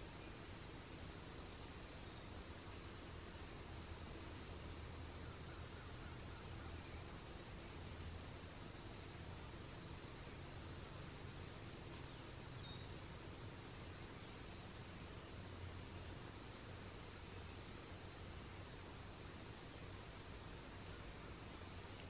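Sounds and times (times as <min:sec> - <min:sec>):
small bird chirping: 0:11.9 - 0:13.1, 0:14.1 - 0:18.4, 0:21.7 - 0:22.0.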